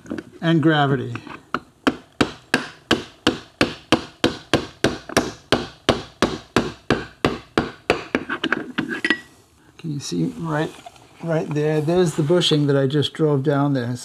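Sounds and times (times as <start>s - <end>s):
hammer tapping on metal: 1.5s - 8.3s.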